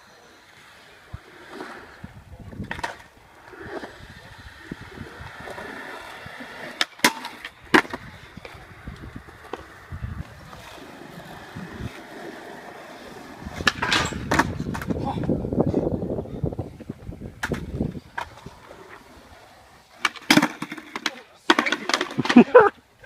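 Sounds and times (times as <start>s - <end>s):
skateboard wheels rolling on concrete: 0.0s - 23.0s
skateboard clacks: 2.6s - 15.4s, 16.6s - 19.1s, 19.9s - 22.5s
board clattering on metal rail: 13.6s - 14.9s.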